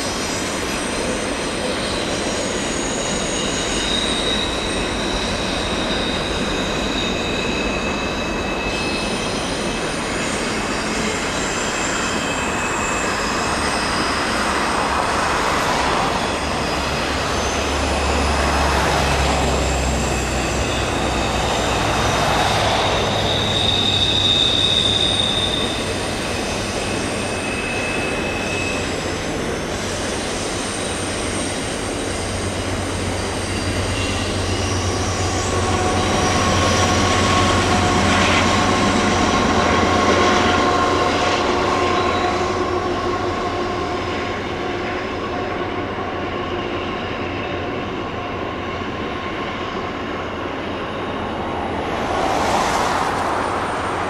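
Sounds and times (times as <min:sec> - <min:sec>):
freight cars rumbling: 0:00.0 - 0:44.1, 0:49.7 - 0:54.0
wheels squealing: 0:00.0 - 0:45.0, 0:48.6 - 0:54.0.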